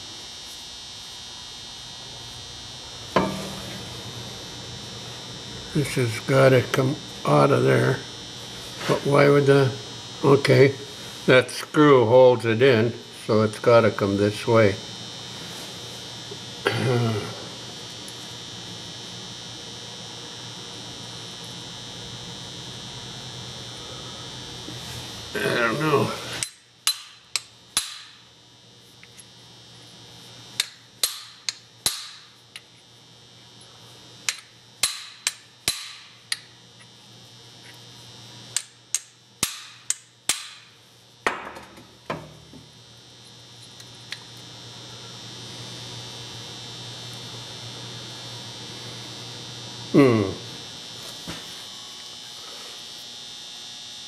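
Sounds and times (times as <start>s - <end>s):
hammer tapping on metal: 3.2s - 3.8s.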